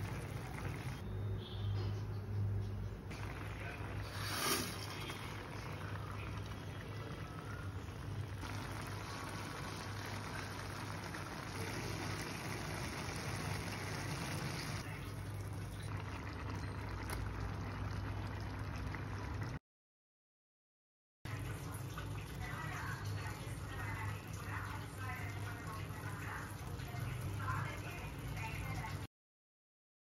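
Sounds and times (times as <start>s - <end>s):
pot boiling and bubbling: 0.0s - 2.2s, 2.8s - 19.6s.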